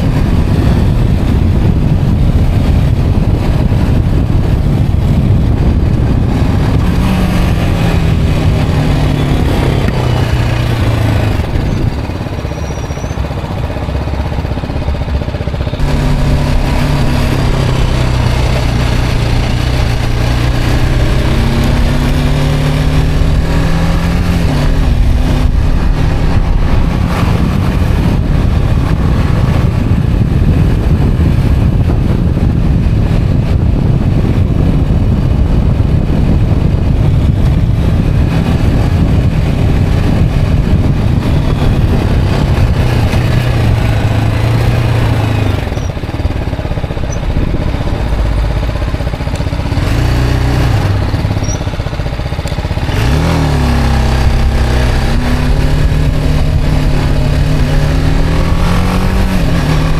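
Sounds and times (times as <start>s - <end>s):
heavy wind and road rush: 0.0s - 59.9s
motorcycle engine accelerating: 0.0s - 59.9s.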